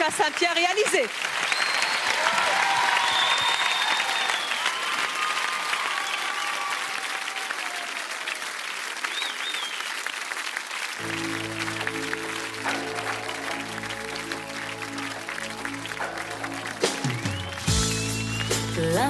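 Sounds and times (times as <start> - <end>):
audience applauding and cheering: 0.0 - 19.0
band playing held notes: 11.0 - 19.0.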